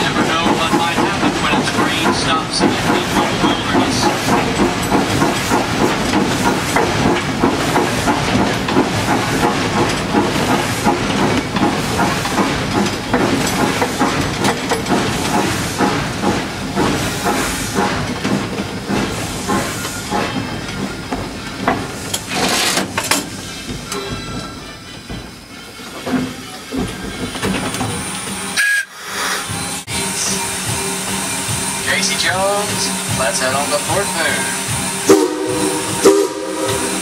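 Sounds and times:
steam locomotive exhaust chuffs: 0.0 - 37.0
steam hiss: 18.9 - 20.6, 28.0 - 37.0.

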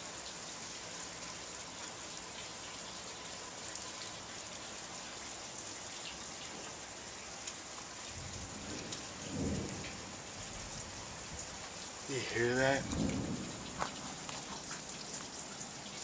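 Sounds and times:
steady rain: 0.0 - 16.0
thunder rumble: 8.2 - 11.5, 12.1 - 14.2.

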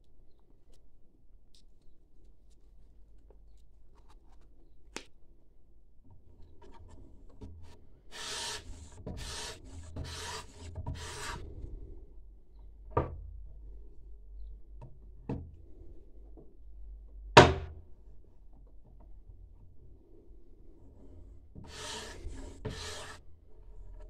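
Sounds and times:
abrasive bar scraping knife edge: 8.1 - 11.4, 21.7 - 23.2.

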